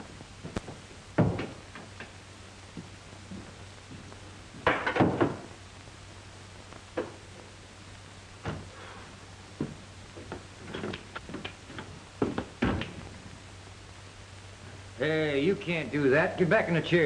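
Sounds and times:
faint low hum: 0.0 - 17.0
boots on wooden floor: 9.6 - 13.0.

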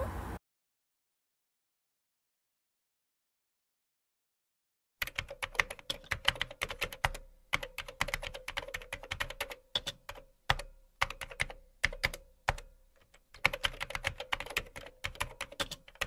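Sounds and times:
computer keyboard typing: 5.0 - 16.0.

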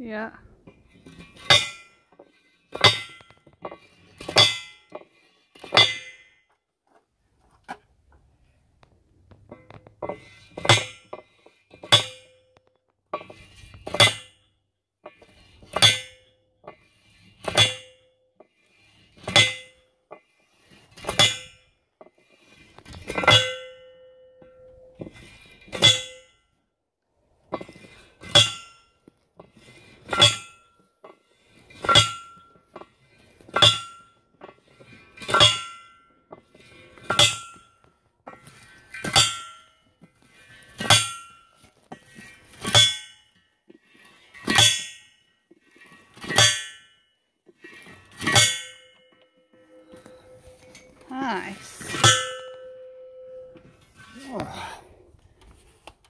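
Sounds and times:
post driver clanging on stake: 0.7 - 6.3, 9.5 - 14.4, 15.1 - 16.8, 17.4 - 18.0, 19.2 - 20.2, 20.9 - 21.6, 22.8 - 26.4, 27.5 - 28.9, 29.5 - 30.8, 31.7 - 34.6, 35.2 - 36.4, 37.0 - 39.8, 40.8 - 43.2, 44.4 - 45.1, 45.8 - 47.0, 47.6 - 54.8.

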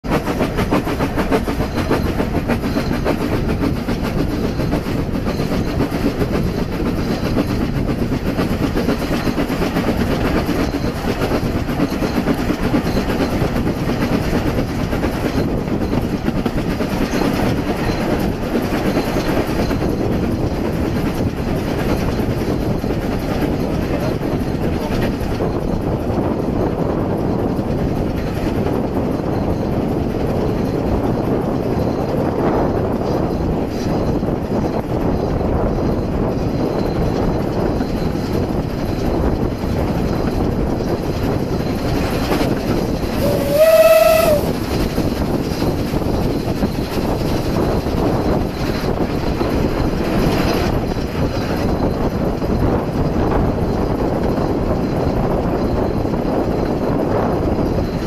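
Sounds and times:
carriage wheels clattering on track: 0.0 - 58.0
steam train rumble: 0.0 - 58.0.

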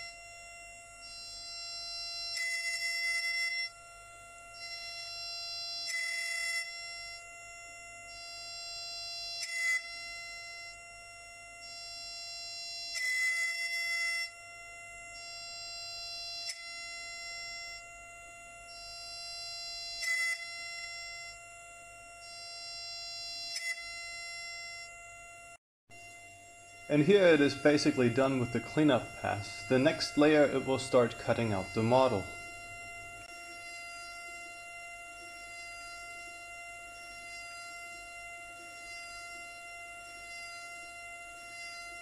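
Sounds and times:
milling spindle whining: 26.0 - 42.0.

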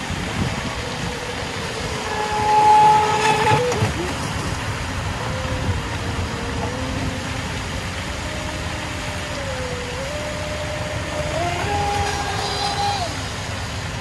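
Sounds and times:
electric motor whining: 5.2 - 13.2.

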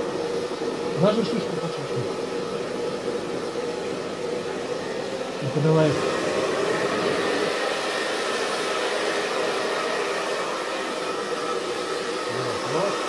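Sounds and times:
hair dryer running: 0.0 - 13.0.

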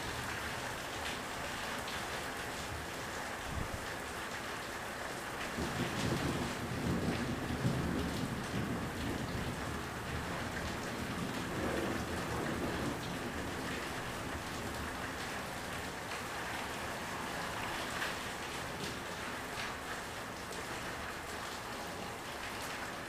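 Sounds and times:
heavy rain falling: 0.0 - 23.0
low thunder rumble: 5.6 - 15.0.

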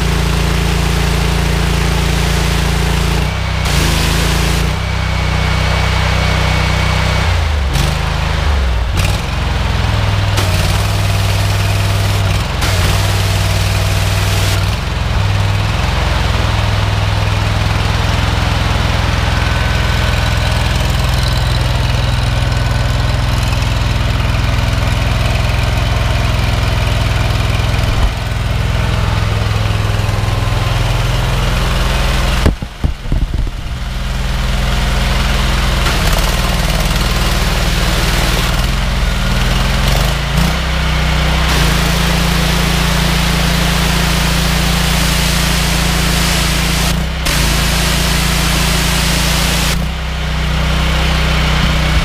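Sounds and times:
petrol engine running: 0.0 - 52.0
high-pressure water jet hissing: 0.6 - 4.7, 10.3 - 14.8, 34.9 - 40.5, 41.4 - 49.9.

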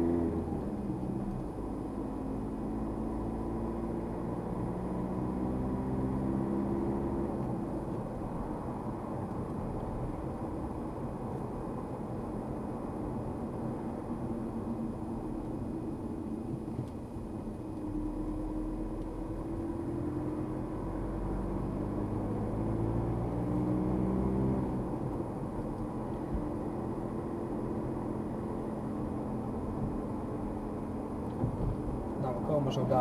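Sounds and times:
car engine accelerating: 0.0 - 10.2, 14.6 - 33.0
road noise inside car: 0.0 - 33.0.

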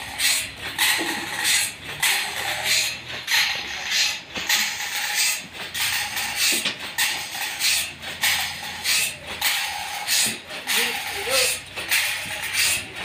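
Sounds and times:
sawmill machinery hum: 0.0 - 13.0.

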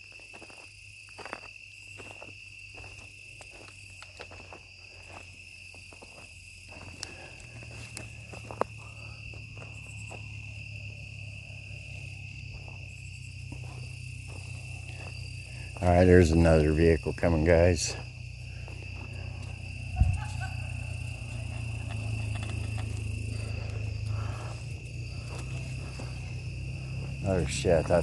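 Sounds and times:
crickets chirring: 0.0 - 28.0
vehicle rumble: 4.0 - 28.0.

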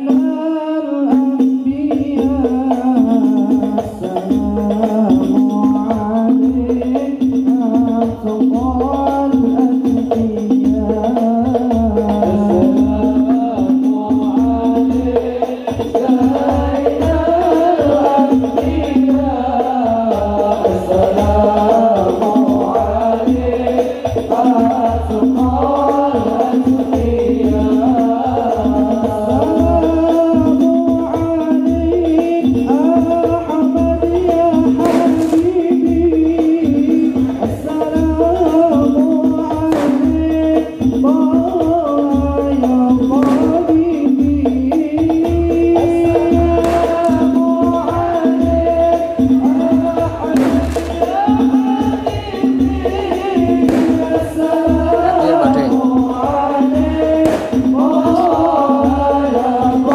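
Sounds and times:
man singing with a group: 0.0 - 59.9
frame drums and jingles: 1.1 - 59.9
deep bass drum beating: 34.3 - 38.7, 39.5 - 41.5, 43.1 - 48.6, 50.0 - 52.0, 53.4 - 59.9
short sharp crack: 34.9 - 35.5, 50.4 - 51.0, 57.3 - 57.7.

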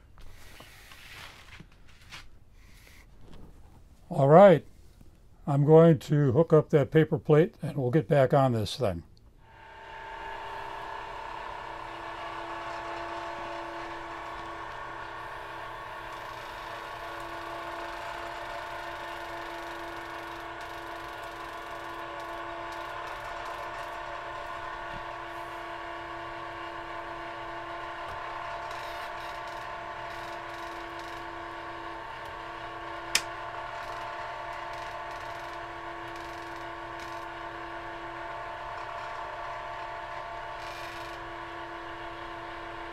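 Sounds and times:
generator humming: 9.4 - 42.9.

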